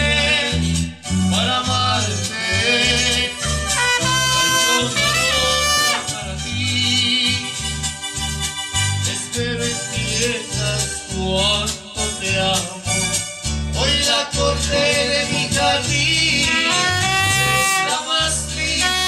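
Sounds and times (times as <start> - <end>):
pulsing bass line: 0.0 - 19.0
trumpet: 2.3 - 6.4, 7.1 - 9.3, 16.4 - 19.0
guitar strumming: 3.6 - 6.3, 16.6 - 18.0.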